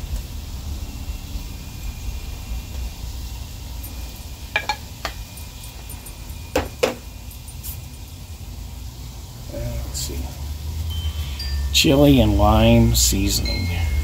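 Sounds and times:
steady low rumble: 0.0 - 14.0
spice containers clinking: 4.6 - 8.2.

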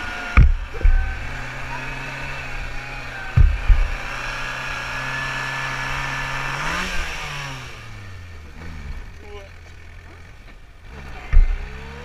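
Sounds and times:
buggy engine running: 0.0 - 12.0
heavy thumps: 0.3 - 4.7, 11.3 - 11.8.

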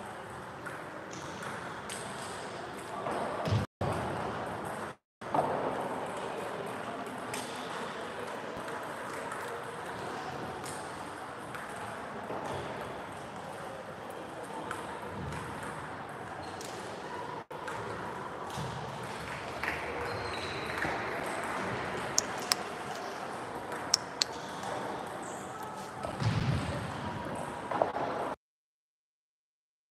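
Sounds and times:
murmur of voices: 5.8 - 28.4
table tennis ball clicking: 22.2 - 22.7, 23.8 - 24.3.

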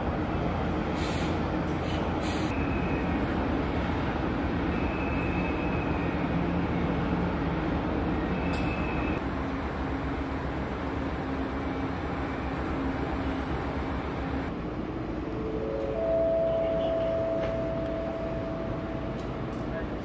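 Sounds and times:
harbour rumble and hiss: 0.0 - 4.6.

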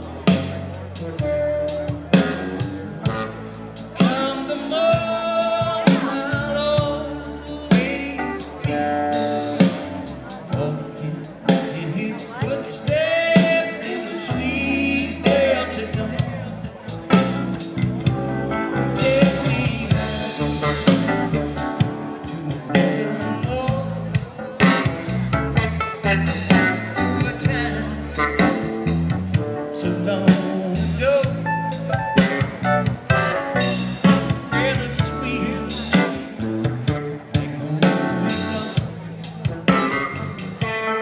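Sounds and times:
drum kit: 0.0 - 10.7, 11.4 - 41.0
bass guitar: 0.0 - 41.0
electric guitar: 0.0 - 41.0
keyboard: 0.0 - 41.0
lead vocal singing: 4.0 - 9.9, 10.5 - 17.7, 18.6 - 25.2, 29.7 - 31.5, 34.0 - 36.4, 37.4 - 40.0.

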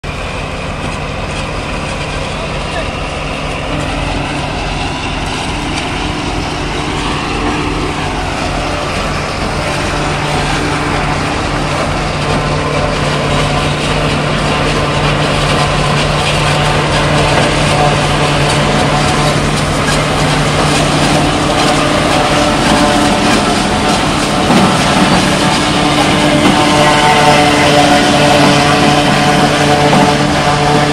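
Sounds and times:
tractor engine droning: 0.0 - 30.9
harvester chopping crop: 0.1 - 30.9.

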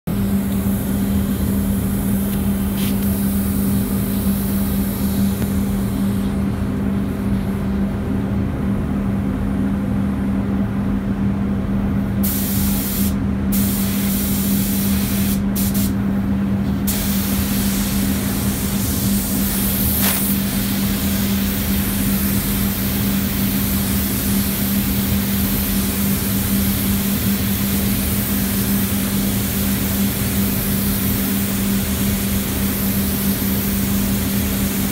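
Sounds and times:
steady low hum: 0.0 - 34.9
spray gun hissing: 0.4 - 5.4, 12.2 - 16.0, 16.9 - 34.9.

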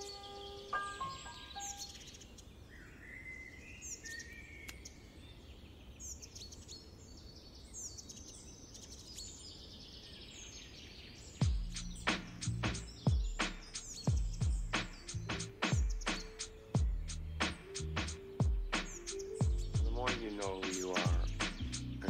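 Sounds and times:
bird warbling call: 0.0 - 4.9, 11.5 - 22.0
birds chirping: 0.0 - 22.0.

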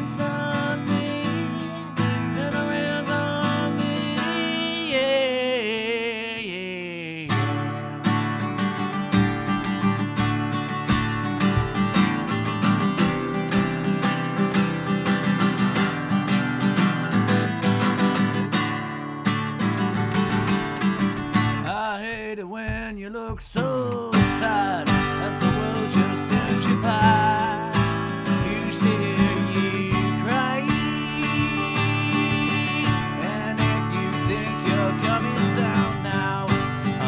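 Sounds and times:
man singing: 0.0 - 8.2, 21.3 - 37.0
acoustic guitar strumming: 0.0 - 37.0.

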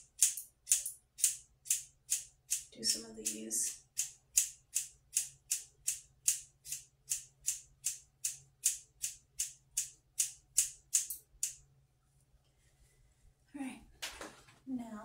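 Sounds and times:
scissors snipping hair: 0.2 - 9.5, 10.2 - 11.6.

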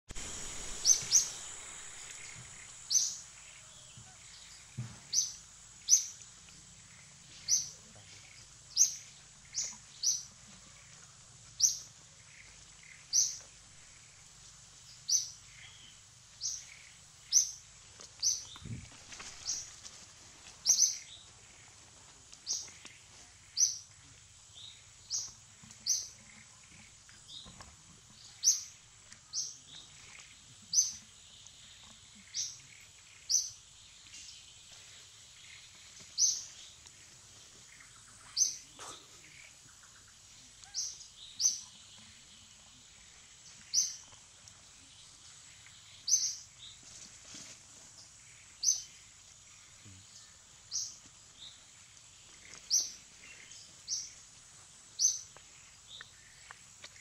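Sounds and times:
bird chirping: 0.2 - 14.3, 22.4 - 46.8, 48.0 - 54.3.

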